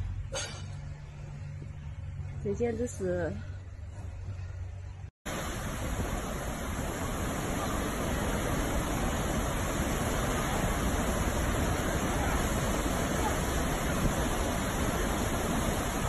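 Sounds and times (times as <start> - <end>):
waterfall rushing: 5.3 - 16.0.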